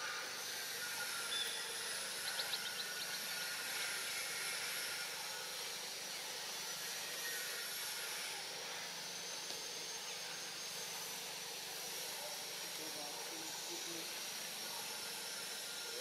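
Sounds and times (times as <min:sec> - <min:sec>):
high-pitched insect chorus: 0:00.4 - 0:05.0.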